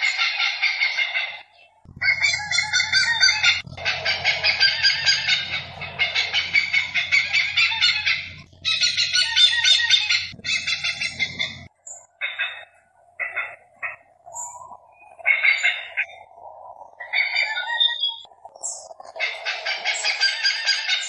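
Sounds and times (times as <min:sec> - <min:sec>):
hornbill clucking call: 0:00.0 - 0:14.1.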